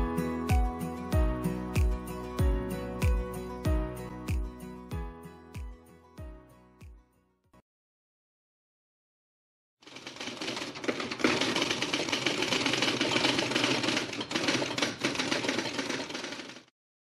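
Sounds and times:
rapid dense clattering: 0:09.8 - 0:16.7.

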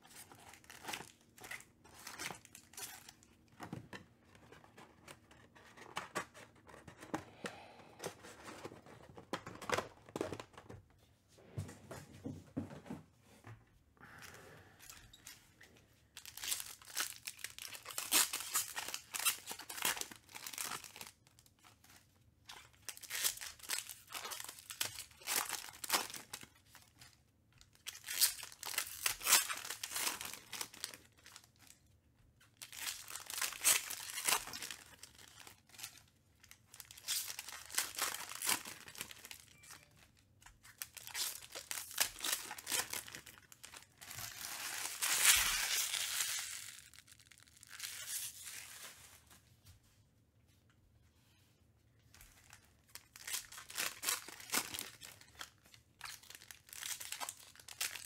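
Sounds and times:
foil wrappers tearing and crinkling: 0:16.2 - 0:21.5, 0:22.6 - 0:27.0, 0:27.7 - 0:31.8, 0:32.6 - 0:39.5, 0:40.6 - 0:49.2, 0:52.4 - 0:58.0.

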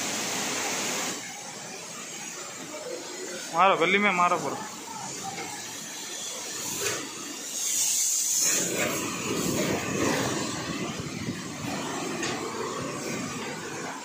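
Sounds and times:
spray gun hissing: 0:00.0 - 0:14.0
sprayer pump motor running: 0:08.5 - 0:14.0.

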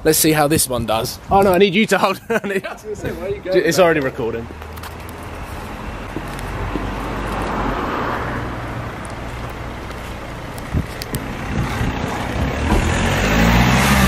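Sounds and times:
outdoor noise: 0:00.0 - 0:14.0
sharp knocks: 0:12.4 - 0:13.0.

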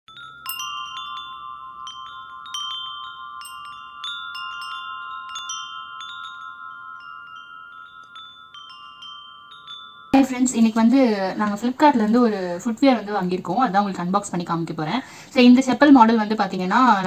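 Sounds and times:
chimes ringing: 0:00.1 - 0:11.6.

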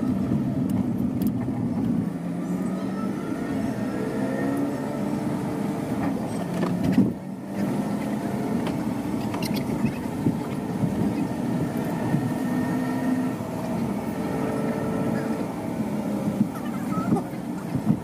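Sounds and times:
car cabin engine and road noise: 0:00.0 - 0:18.0.

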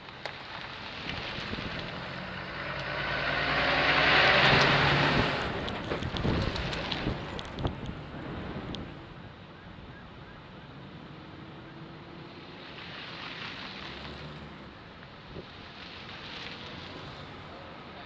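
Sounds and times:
wind rushing over microphone: 0:00.8 - 0:09.2.

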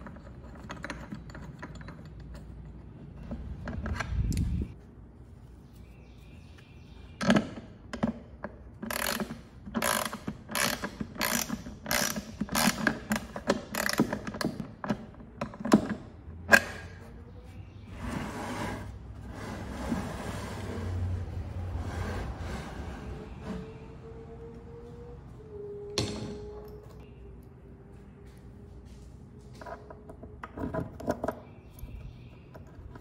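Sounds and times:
ratchet wrench clicking: 0:08.9 - 0:13.0.

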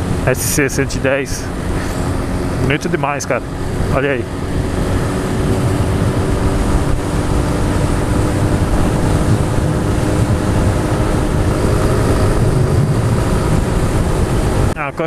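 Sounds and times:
motorcycle engine cruising: 0:00.0 - 0:15.0
wind rush on microphone: 0:00.0 - 0:15.0.

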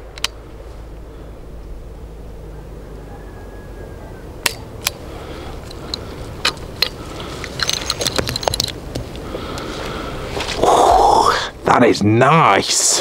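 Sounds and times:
revolver clicks: 0:00.0 - 0:01.1, 0:04.4 - 0:10.0
metallic clinks of ejected cases: 0:05.6 - 0:09.2.

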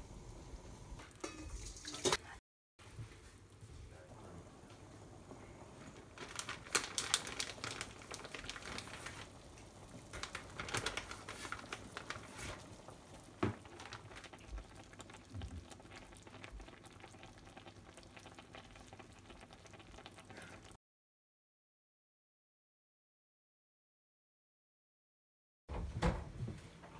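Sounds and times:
broth bubbling and crackling: 0:04.6 - 0:20.8.

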